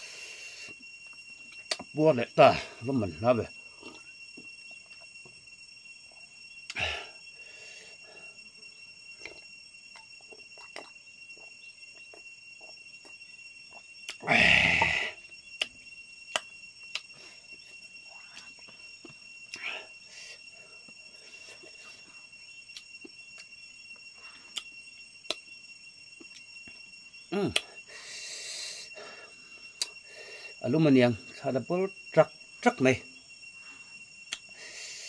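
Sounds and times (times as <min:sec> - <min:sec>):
high insect drone: 0:00.0 - 0:35.0
man eating and drinking: 0:09.2 - 0:15.1.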